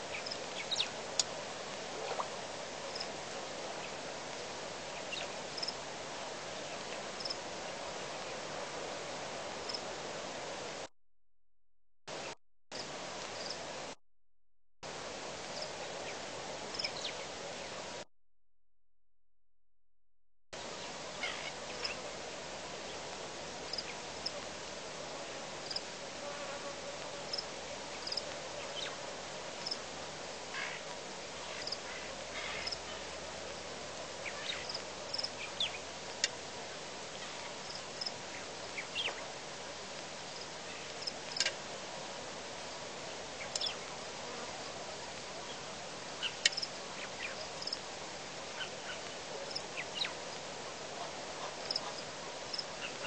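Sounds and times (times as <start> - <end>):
steady hiss: 0.0 - 10.9, 14.9 - 18.0, 20.6 - 53.0
insects chirping: 0.1 - 0.9, 2.9 - 3.1, 5.5 - 5.8, 7.2 - 7.4, 12.8 - 13.6, 16.7 - 17.1, 23.7 - 24.4, 25.6 - 25.9, 27.3 - 28.2, 31.5 - 32.8, 34.3 - 36.3, 40.3 - 41.5, 46.2 - 47.8, 52.5 - 52.9.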